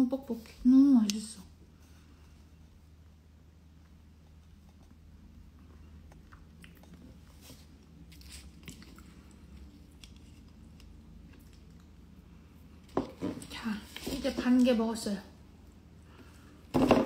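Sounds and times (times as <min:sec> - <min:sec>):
person chewing quietly: 0:03.7 - 0:12.8.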